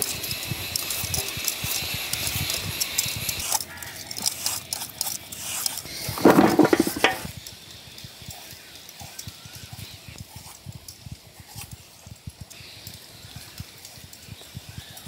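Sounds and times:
rattle: 0:00.1 - 0:07.5
peelers scraping gourd skin: 0:03.4 - 0:07.3.

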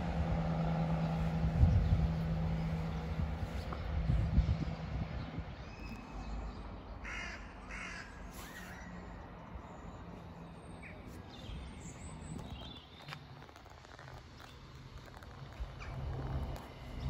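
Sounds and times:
distant train rumble: 0:00.0 - 0:05.8
crow cawing: 0:07.0 - 0:08.2.

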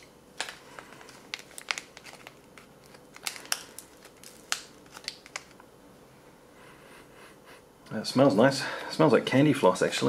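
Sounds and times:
packet crinkling: 0:00.0 - 0:05.6.

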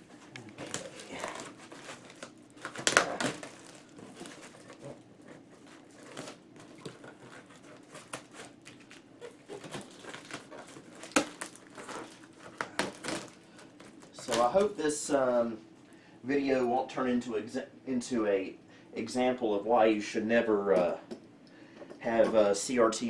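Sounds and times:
packing tape being cut and torn: 0:00.3 - 0:14.7.

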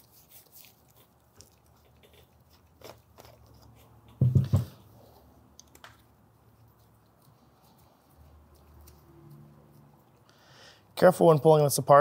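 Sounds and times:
louder knocks: 0:04.2 - 0:04.8
small clicks of metal and plastic parts: 0:05.5 - 0:06.1.

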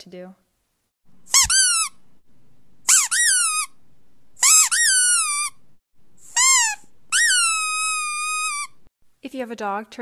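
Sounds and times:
high-pitched squeaks: 0:01.3 - 0:02.0, 0:02.9 - 0:03.8, 0:04.4 - 0:05.6, 0:06.2 - 0:08.9.

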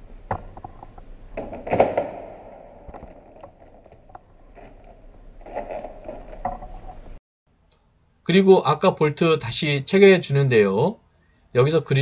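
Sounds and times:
plastic clicks and knocks: 0:00.3 - 0:04.7.

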